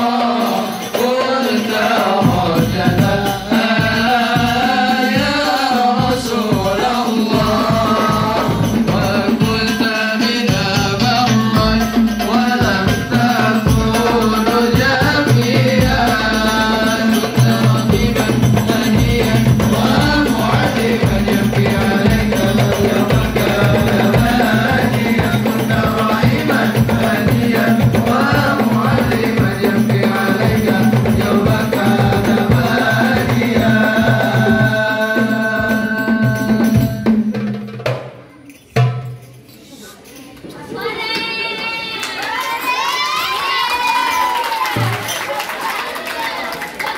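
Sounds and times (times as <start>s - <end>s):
man singing: 0.0s - 37.4s
frame drums beating: 0.0s - 39.5s, 43.8s - 45.4s.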